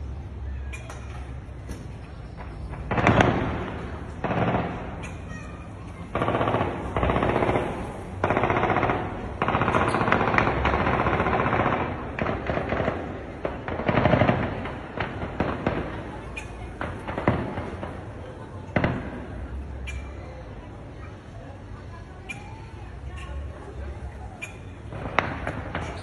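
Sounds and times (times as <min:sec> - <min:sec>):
automatic gunfire bursts: 0:02.9 - 0:05.0, 0:06.1 - 0:16.2.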